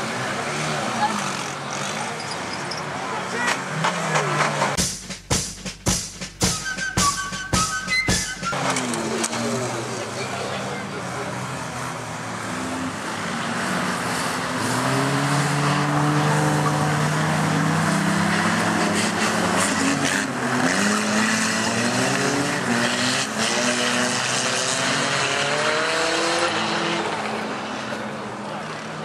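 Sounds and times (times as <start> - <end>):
race car engines revving: 0.0 - 4.8, 7.7 - 29.0.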